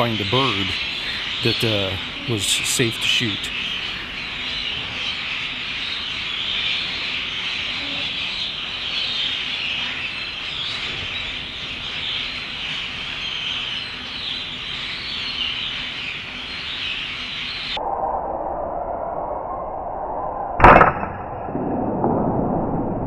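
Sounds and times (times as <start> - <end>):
flock of starlings chattering: 0.0 - 17.8.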